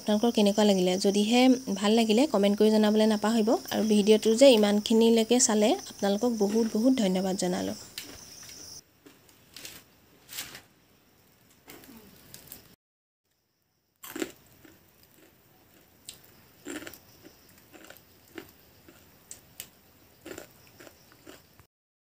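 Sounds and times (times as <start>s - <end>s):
person chewing crunchy peanuts: 14.0s - 21.6s.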